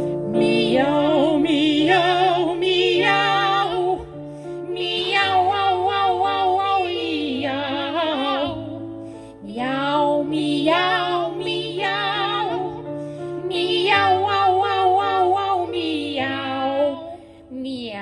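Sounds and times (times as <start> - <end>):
piano accompaniment: 0.0 - 17.8
woman singing operatically: 0.3 - 4.1.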